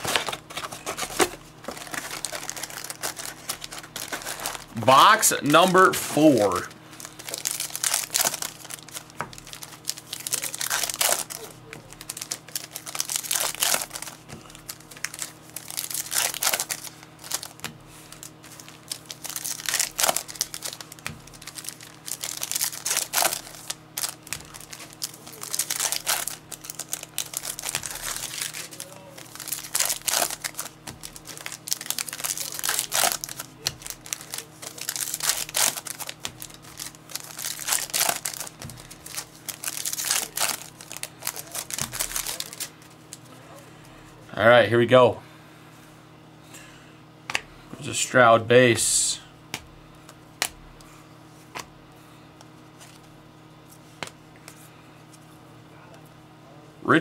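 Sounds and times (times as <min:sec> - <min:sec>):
card pack wrappers crinkling and tearing: 0:00.0 - 0:43.3, 0:52.7 - 0:53.1.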